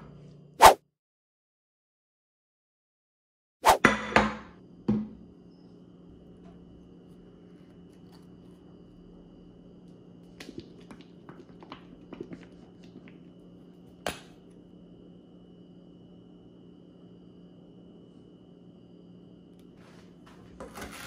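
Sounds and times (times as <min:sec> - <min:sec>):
faint steady hum: 0:04.6 - 0:21.0.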